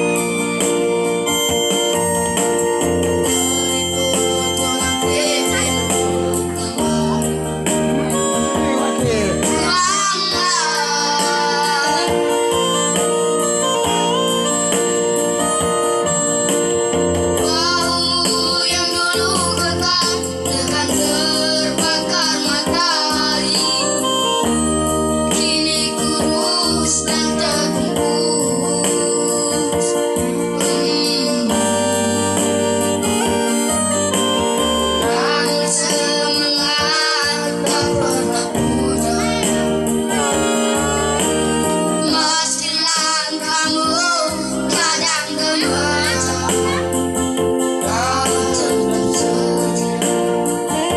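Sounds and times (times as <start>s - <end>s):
electronic keyboard chords: 0.0s - 50.9s
boys singing: 3.4s - 13.0s, 17.4s - 24.0s, 25.3s - 32.8s, 35.0s - 47.0s, 47.8s - 50.5s.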